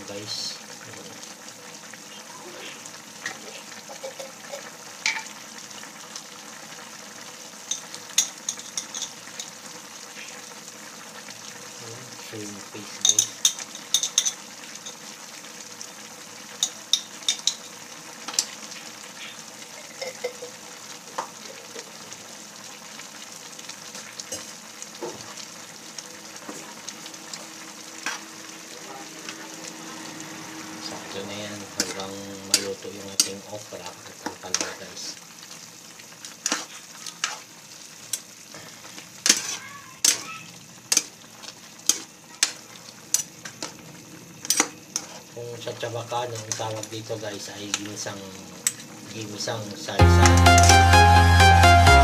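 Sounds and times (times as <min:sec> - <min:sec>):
vegetables sizzling in a pan: 0:00.0 - 0:51.6
metal spoon clinking against pan: 0:13.0 - 0:15.0, 0:16.6 - 0:17.7, 0:19.9 - 0:20.5.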